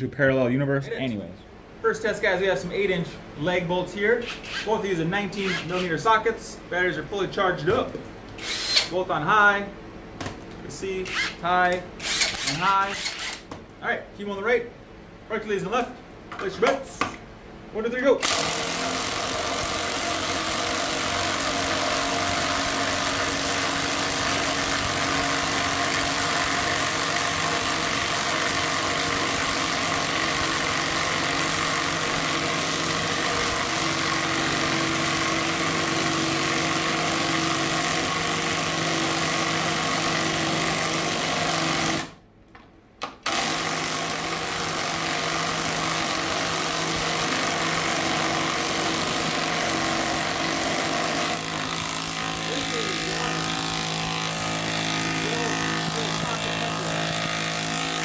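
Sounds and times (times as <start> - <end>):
impact wrenches hammering: 12.0 - 13.5.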